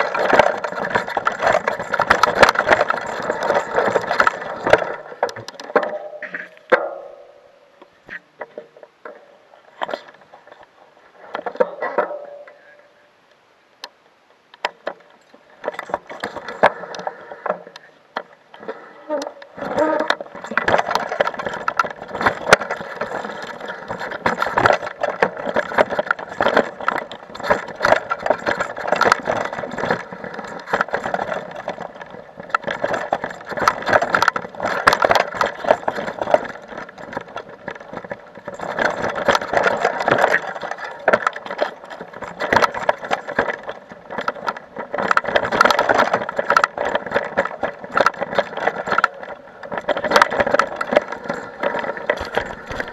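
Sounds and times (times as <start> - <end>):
mountain bike rattling: 0.0 - 7.5, 8.1 - 12.9, 14.6 - 52.9.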